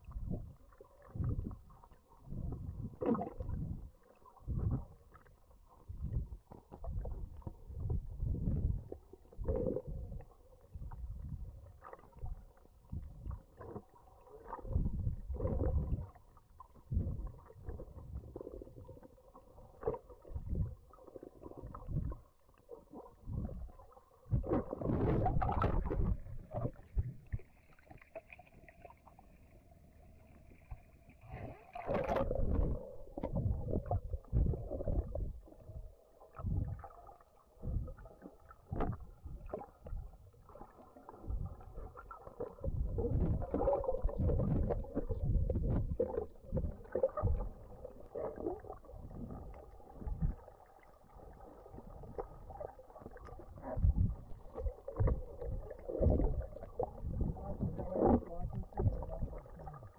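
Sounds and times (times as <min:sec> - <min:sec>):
bubbly splashes: 0:00.0 - 0:29.6, 0:30.5 - 0:59.9
underwater water surges: 0:00.0 - 0:59.9.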